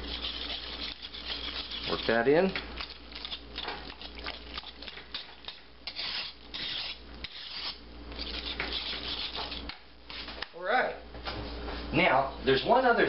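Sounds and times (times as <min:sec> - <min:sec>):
whisk scraping metal pot: 0:00.0 - 0:10.3.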